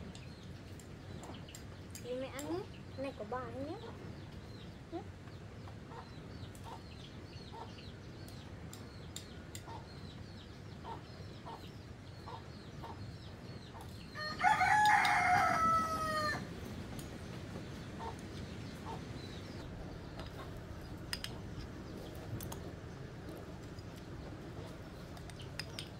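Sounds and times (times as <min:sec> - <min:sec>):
rooster crowing: 0:14.2 - 0:16.6.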